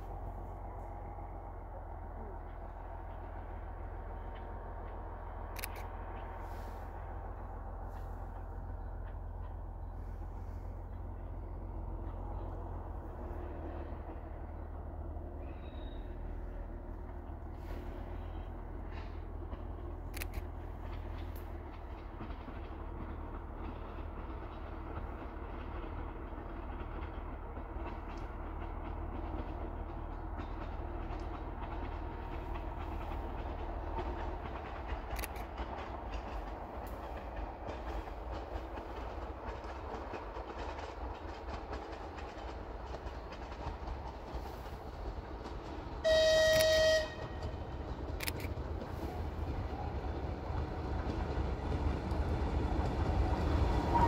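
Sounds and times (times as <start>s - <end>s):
train rumbling on rails: 0.0s - 54.0s
faint clicks: 4.2s - 6.3s, 18.9s - 22.4s, 34.0s - 39.0s.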